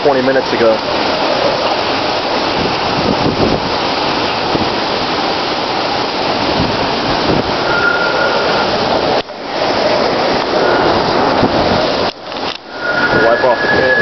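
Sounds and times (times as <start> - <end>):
heavy rain: 0.0 - 14.0
hurricane-force wind: 0.0 - 14.0
wind buffeting microphone: 0.0 - 14.0
faint high whistle: 7.6 - 8.7, 12.7 - 14.0.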